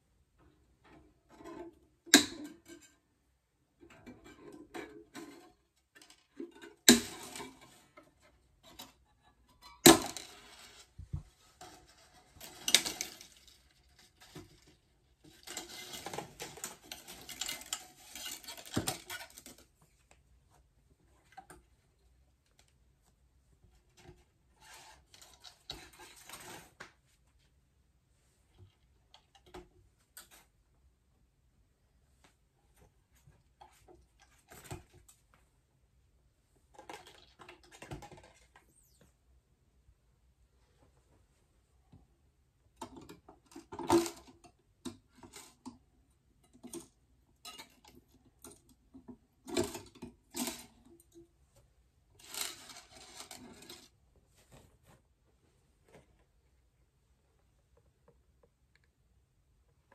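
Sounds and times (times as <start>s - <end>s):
loose strings rattling and scraping: 3.7s - 19.9s.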